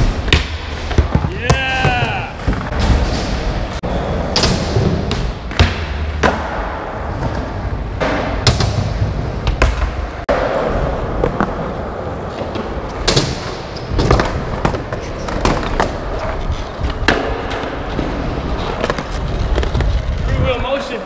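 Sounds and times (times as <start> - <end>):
skateboard wheels rolling on concrete: 0.0 - 21.0.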